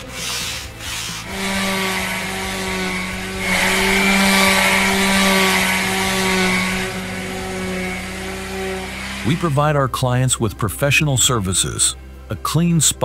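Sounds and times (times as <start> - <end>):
electric polisher motor hum: 0.0 - 9.6
polisher hiss: 0.0 - 9.6.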